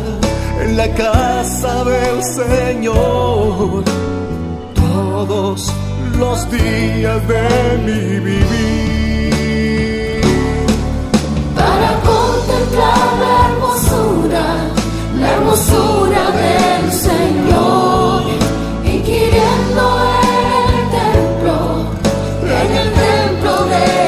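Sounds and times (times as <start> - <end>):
instrumental backing: 0.0 - 24.0
voices singing together: 11.5 - 24.0.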